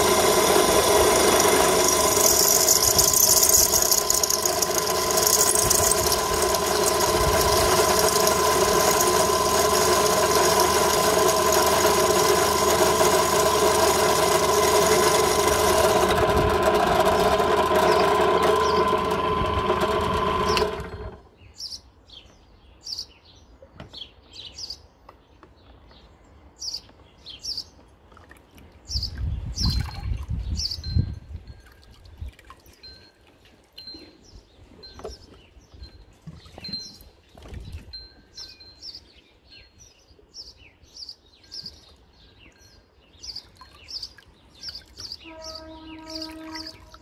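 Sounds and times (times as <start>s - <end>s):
drill motor whining: 0.0s - 21.3s.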